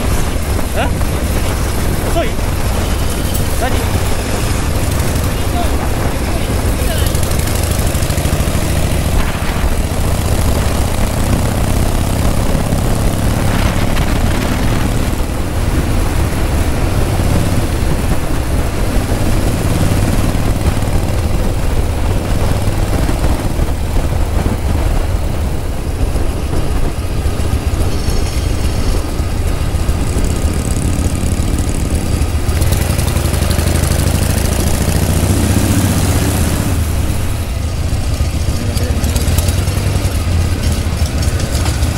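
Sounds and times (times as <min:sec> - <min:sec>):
motorcycle engine running: 0:00.0 - 0:41.9
wind rush over microphone: 0:00.0 - 0:41.9.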